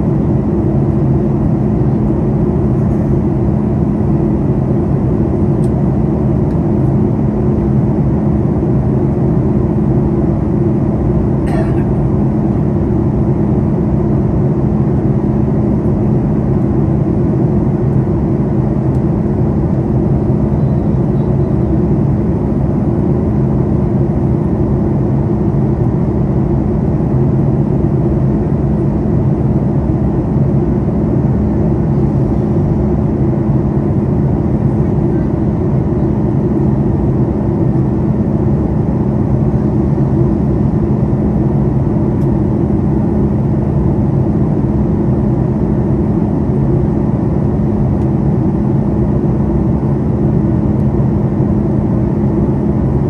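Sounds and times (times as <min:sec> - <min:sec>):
airplane cabin engine and airflow: 0:00.0 - 0:53.0.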